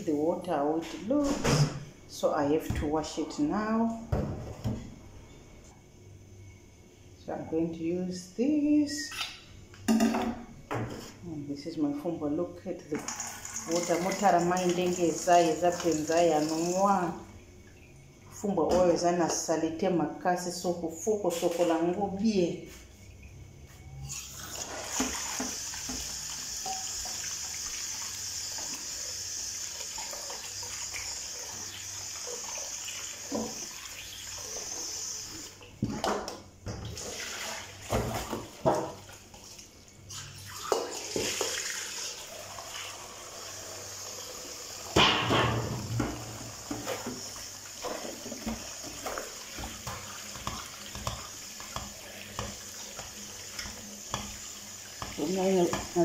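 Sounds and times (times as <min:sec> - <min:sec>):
tap running into metal bowl: 0:47.8 - 0:56.0.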